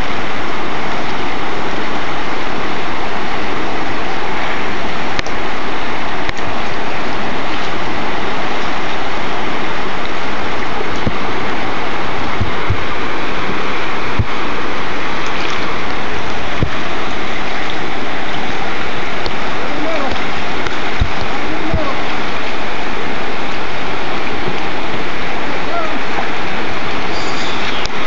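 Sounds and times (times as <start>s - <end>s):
river rapids rushing: 0.0s - 28.0s
low bumps: 10.8s - 22.2s.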